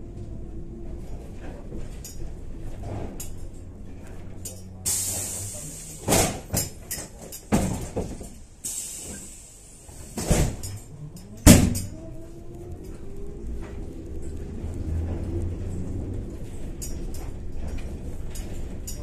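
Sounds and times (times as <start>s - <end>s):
body knocking and rattling: 0.9s - 4.4s, 6.1s - 8.4s, 15.0s - 19.0s
air hissing: 4.9s - 6.4s, 8.6s - 10.4s.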